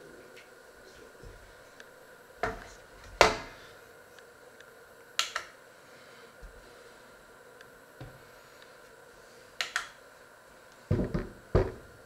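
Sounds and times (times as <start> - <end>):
knocks on wooden board: 10.9 - 11.8.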